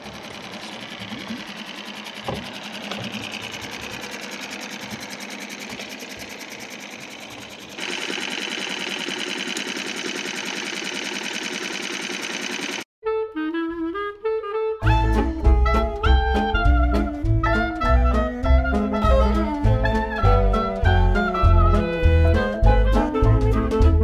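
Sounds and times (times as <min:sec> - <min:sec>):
outboard motor putter: 0:00.0 - 0:12.9.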